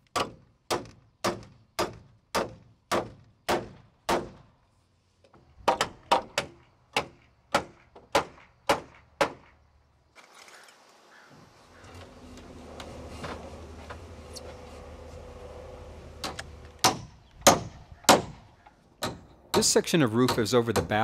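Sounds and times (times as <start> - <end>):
hammer driving nails into wood: 0.1 - 4.4, 5.6 - 9.5, 16.2 - 21.0.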